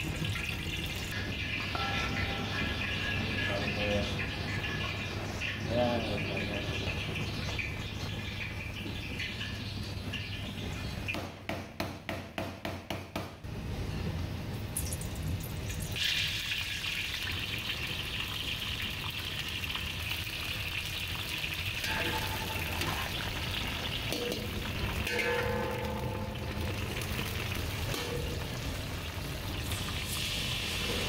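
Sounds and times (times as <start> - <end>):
leaves sizzling in hot oil: 14.7 - 31.0.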